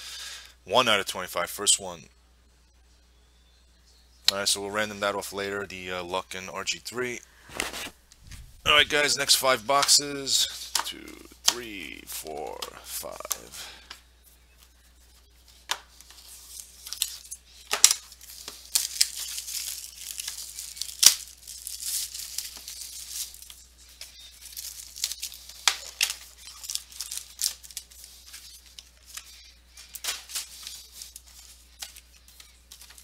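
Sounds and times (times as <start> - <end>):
plastic shrink wrap tearing: 16.1 - 33.0.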